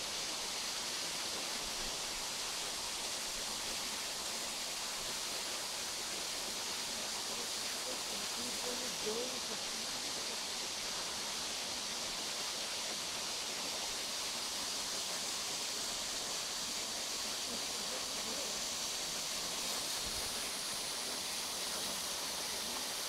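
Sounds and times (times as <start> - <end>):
waterfall rushing: 12.6 - 23.0.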